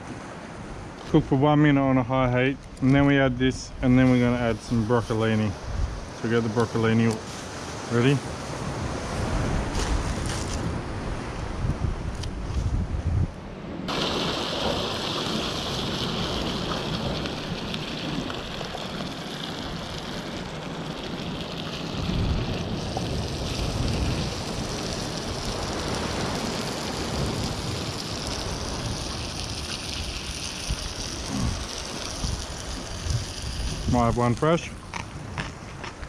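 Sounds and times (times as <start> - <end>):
wind rumbling on microphone: 0.0 - 36.0
surf: 0.9 - 11.8, 13.8 - 36.0
sauce sizzling in pan: 13.9 - 34.4.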